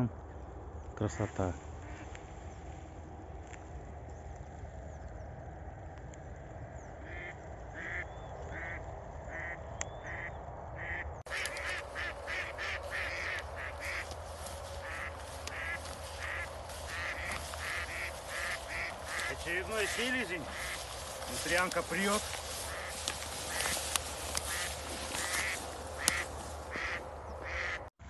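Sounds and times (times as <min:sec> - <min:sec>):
wind rumbling on microphone: 0:00.0 - 0:27.8
duck quacking: 0:07.0 - 0:27.9.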